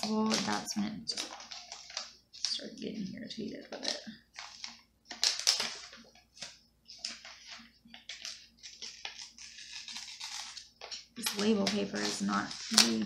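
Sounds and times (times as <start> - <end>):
sticker paper rustling and crinkling: 0.0 - 13.0.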